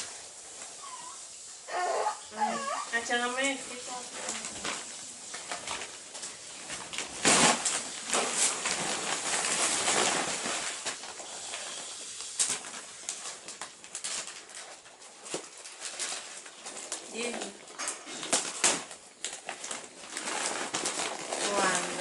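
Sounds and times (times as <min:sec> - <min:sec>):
wrapping paper crinkling: 0:00.0 - 0:22.0.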